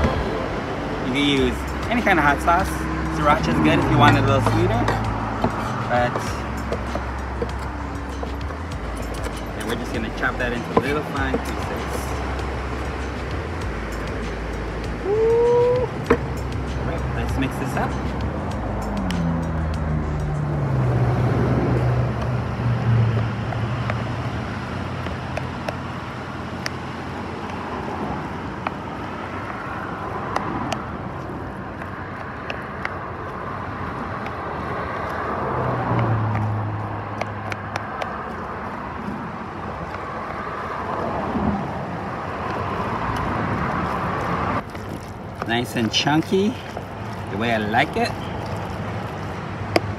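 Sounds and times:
outdoor rushing noise: 0.0s - 49.9s.

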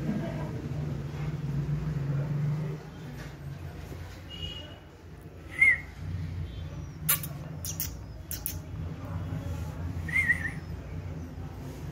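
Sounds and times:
puppy squeaking: 6.8s - 8.7s.

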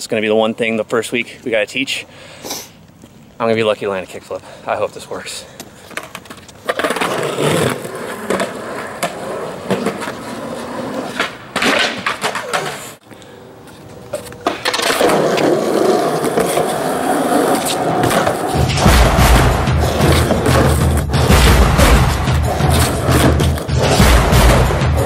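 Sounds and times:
skateboard wheels rolling on concrete: 2.7s - 18.7s, 22.5s - 23.8s
booming bass music beat: 18.6s - 25.0s.

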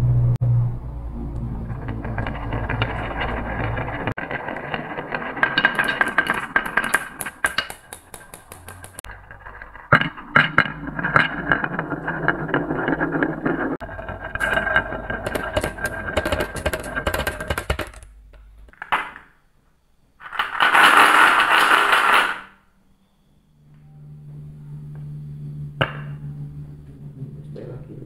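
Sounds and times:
loud rattle: 1.5s - 18.7s
marbles rolling on wooden tracks: 1.7s - 19.4s, 20.2s - 22.6s
marbles dropping into plastic truck: 20.2s - 22.6s.

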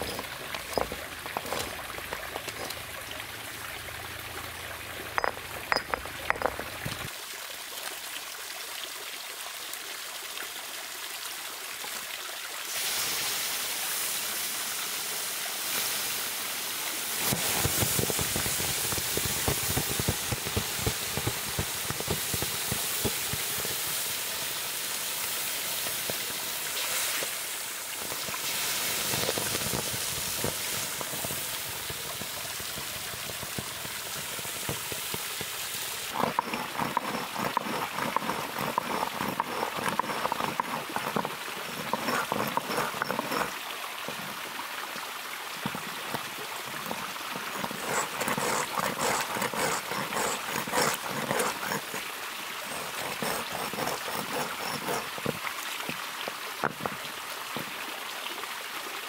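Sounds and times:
hot iron hissing in water: 0.0s - 2.9s, 5.2s - 7.1s, 12.7s - 44.5s, 45.6s - 56.0s
iron scraping on wet stone: 0.0s - 3.0s, 5.1s - 7.1s, 17.2s - 44.4s, 45.6s - 55.9s, 56.6s - 57.0s
stream trickling: 0.0s - 59.0s.

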